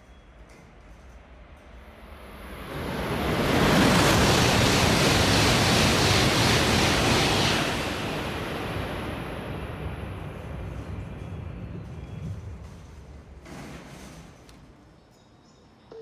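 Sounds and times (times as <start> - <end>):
high-speed train passing: 1.2 - 14.0.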